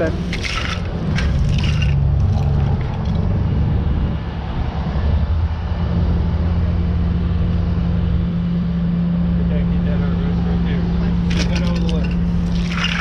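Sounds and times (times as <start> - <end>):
hydraulic hum: 0.0 - 13.0
truck engine drone: 0.0 - 13.0.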